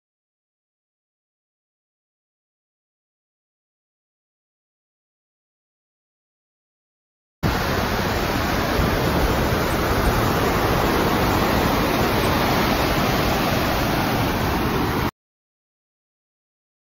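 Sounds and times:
waterfall rushing: 7.4 - 15.1.

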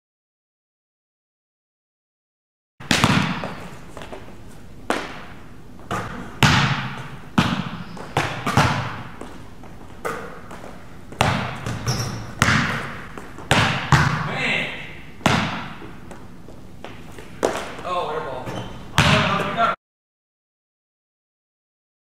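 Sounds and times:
basketball thudding on gym floor: 2.8 - 3.6, 5.9 - 9.3, 10.0 - 14.3, 15.2 - 15.8, 18.5 - 19.5.

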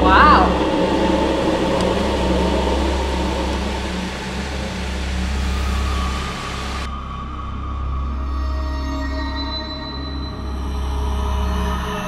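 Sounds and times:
pool pump humming: 0.0 - 6.9
water rushing through pipes: 0.0 - 6.9.

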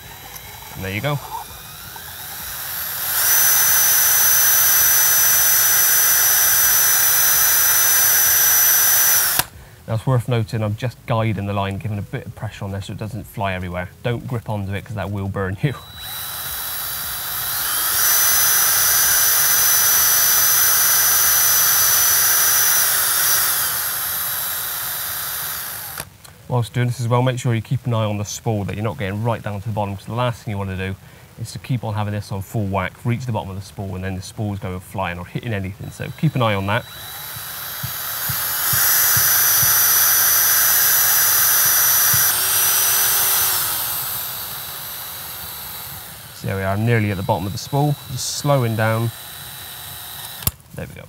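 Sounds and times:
cordless drill motor whine: 0.0 - 9.6, 15.6 - 26.5, 35.5 - 50.6.

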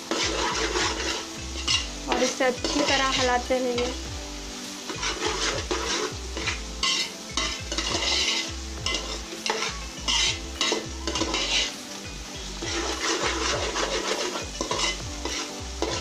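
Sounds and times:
metal spoon scraping pot: 0.0 - 4.0, 4.9 - 11.8, 12.6 - 16.0
vegetables sizzling in oil: 0.0 - 16.0.

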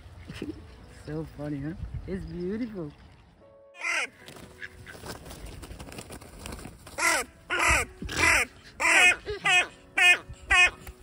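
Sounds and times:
crows cawing: 3.8 - 5.0, 7.0 - 10.8.

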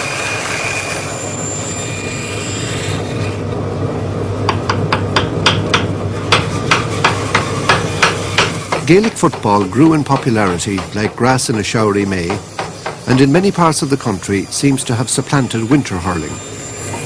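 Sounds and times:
hammer tapping metal band: 4.5 - 11.7.

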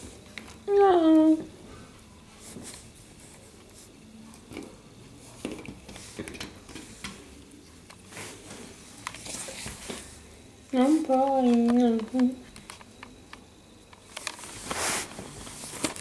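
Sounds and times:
puppy claws clicking on tiles: 11.1 - 13.4.

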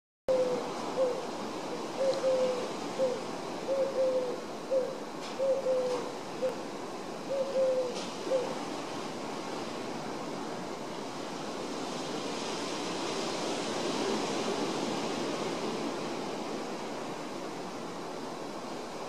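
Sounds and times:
dove cooing: 0.3 - 1.3, 1.9 - 6.6, 7.3 - 8.6
steady background hiss: 0.3 - 19.0.

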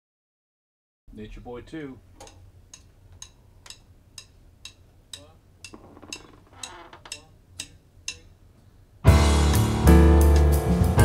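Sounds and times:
metronome clicks ticking: 2.2 - 8.4.

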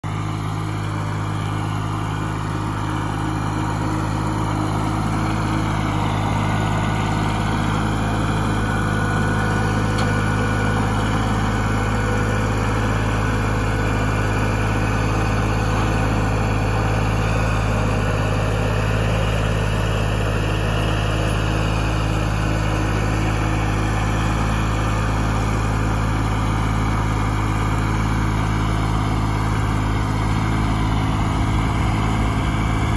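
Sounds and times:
tractor engine running under load: 0.0 - 32.9.

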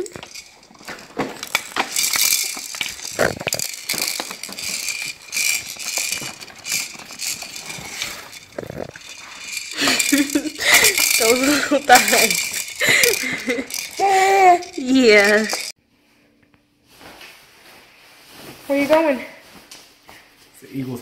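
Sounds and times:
plastic toys rattling and clicking: 0.0 - 15.8.

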